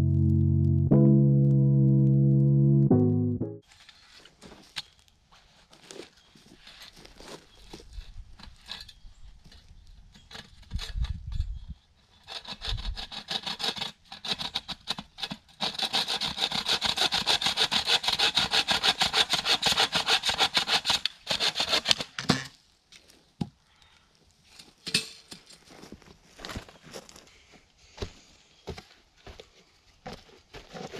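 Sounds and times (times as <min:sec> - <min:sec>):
hand saw cutting wood: 0:12.2 - 0:22.2.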